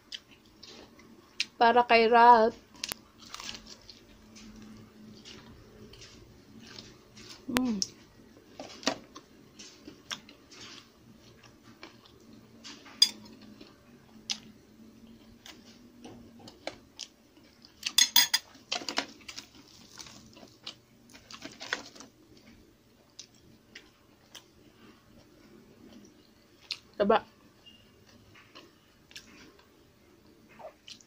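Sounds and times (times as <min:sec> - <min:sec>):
metal spoon clinking on plates: 0:13.0 - 0:13.3, 0:17.9 - 0:18.5.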